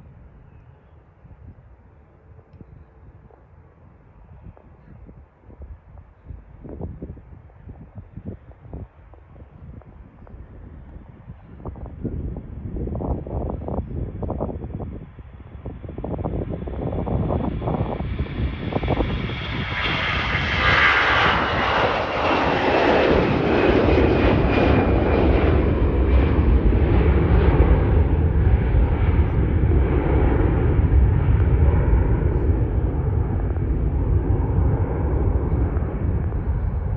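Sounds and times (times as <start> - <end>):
jet airliner taking off: 8.6 - 36.9.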